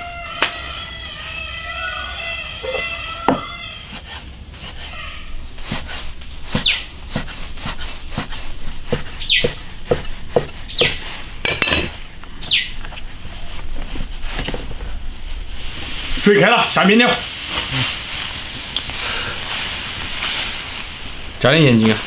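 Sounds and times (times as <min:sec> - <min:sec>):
cleaver chopping on wooden block: 0:06.5 - 0:11.0.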